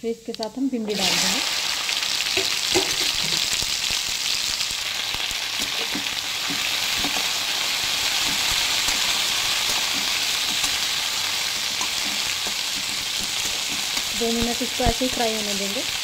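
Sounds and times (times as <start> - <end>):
okra sizzling in hot oil: 0.2 - 16.0
spatula knocking and scraping pan: 2.4 - 3.4, 5.6 - 7.4, 8.2 - 10.9, 11.7 - 14.2.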